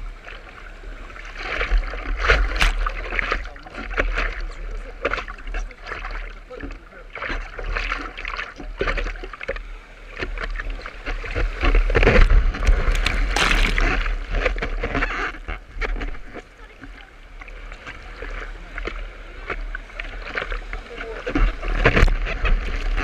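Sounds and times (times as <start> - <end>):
whitewater rushing and splashing: 10.1 - 23.0.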